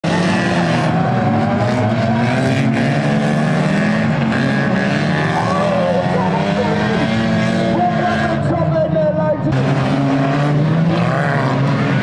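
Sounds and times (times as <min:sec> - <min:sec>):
racing car engines running together: 0:00.0 - 0:12.0.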